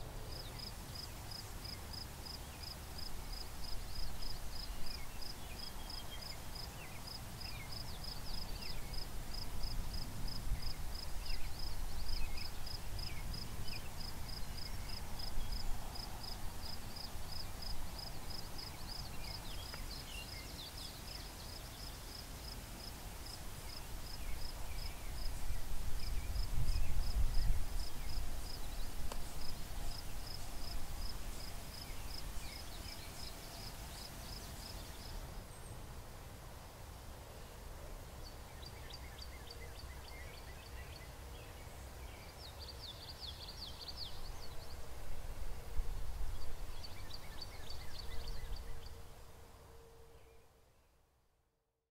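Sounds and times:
insect chirping: 0.3 - 6.7.

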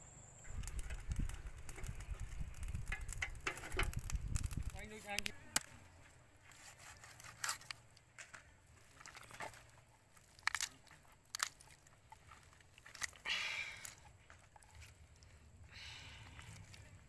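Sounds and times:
chicken bones cracking: 7.0 - 8.0, 8.8 - 15.4.

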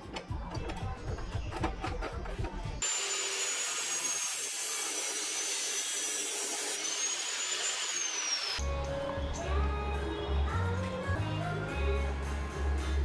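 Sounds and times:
cut-off saw grinding steel: 2.8 - 8.6.

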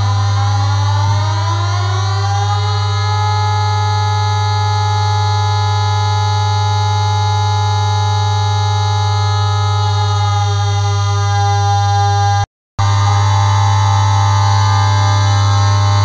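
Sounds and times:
siren steady tone: 0.0 - 16.0.

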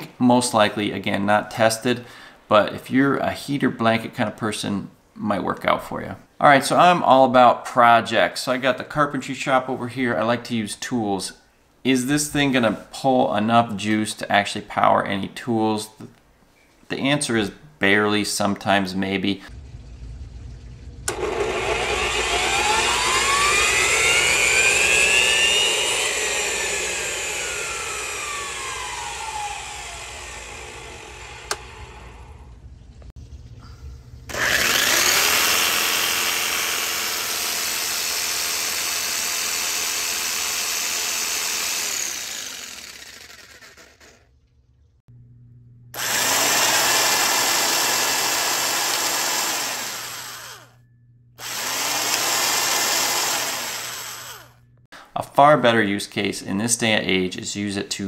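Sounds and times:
electric drill running: 21.1 - 32.5, 34.3 - 44.3, 45.9 - 50.8, 51.4 - 54.7
miter saw motor whining: 21.1 - 32.5, 34.3 - 44.2, 45.9 - 50.8, 51.4 - 54.8
scroll saw running: 21.1 - 32.5, 34.3 - 44.3, 45.9 - 50.8, 51.4 - 54.7.

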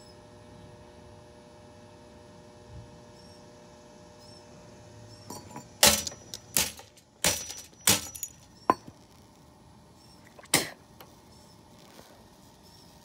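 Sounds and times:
faint electrical hum: 0.0 - 13.0
sharp cracks with metallic ring: 5.8 - 8.6.

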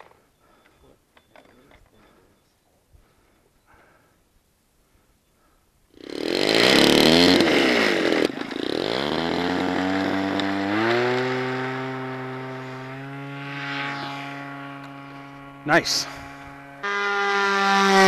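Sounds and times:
model plane engine revving: 6.0 - 18.0.

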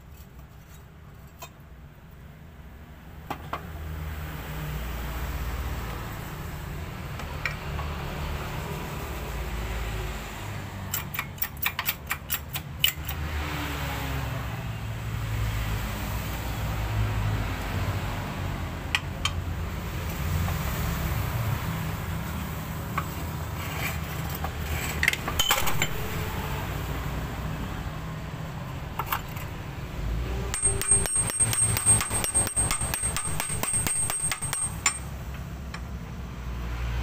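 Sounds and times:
metal parts clicking and clinking: 23.9 - 26.2, 30.6 - 35.1.

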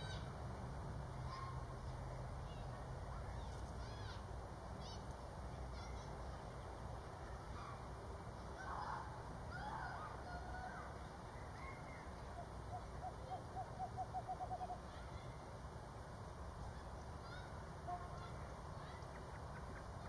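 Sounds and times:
lower bird calls: 11.3 - 15.0.

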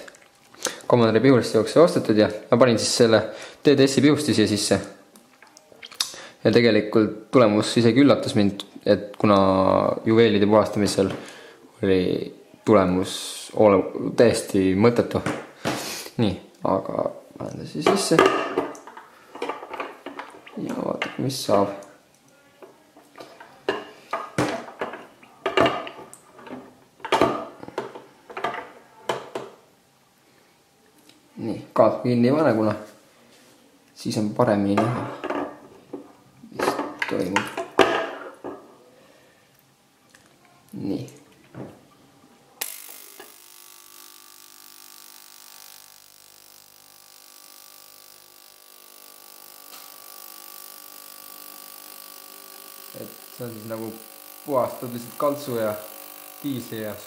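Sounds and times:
ultrasonic cleaner humming: 42.6 - 57.0.

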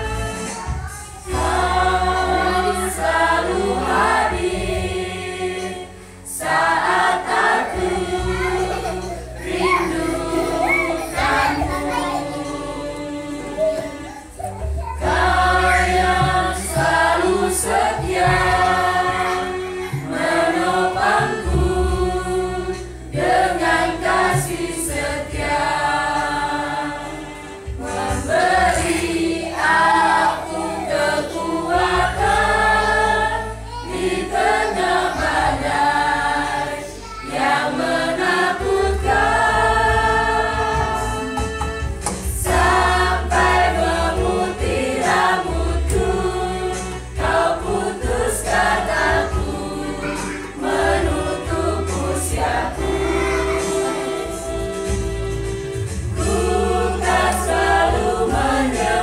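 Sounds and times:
mixed choir singing: 0.0 - 59.0.

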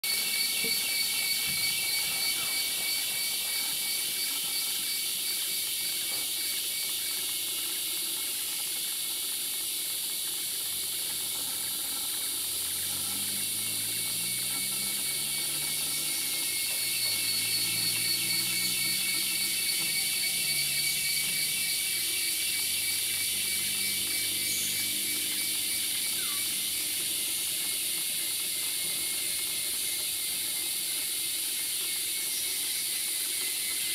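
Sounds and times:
insect chorus buzzing: 0.0 - 33.9.

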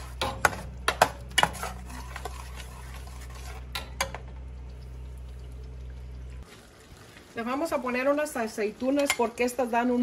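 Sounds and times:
spoon stirring thick beans: 0.0 - 4.1
low hum: 2.0 - 6.4.

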